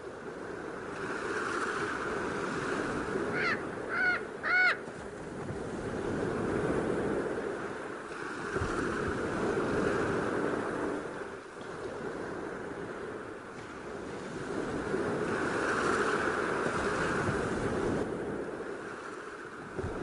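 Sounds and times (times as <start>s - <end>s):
ocean surf breaking on beach: 0.0s - 20.0s
bird calling: 3.3s - 4.9s.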